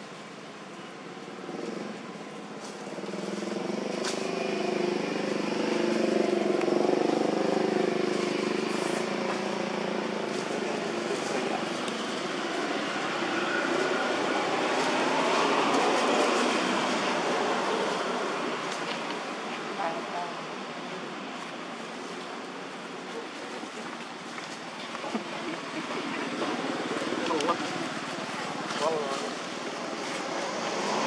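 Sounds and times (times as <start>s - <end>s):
vehicle engine passing: 2.6s - 20.9s, 24.6s - 31.0s.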